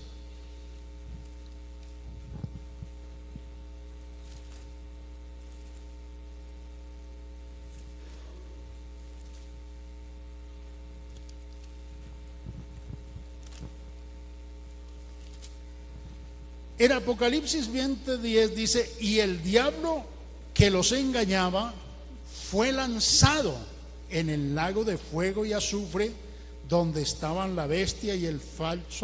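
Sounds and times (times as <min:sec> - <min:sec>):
electrical mains hum: 0:00.0 - 0:29.0
pages turning: 0:04.2 - 0:04.8, 0:05.4 - 0:05.9, 0:13.4 - 0:13.9, 0:14.9 - 0:15.6.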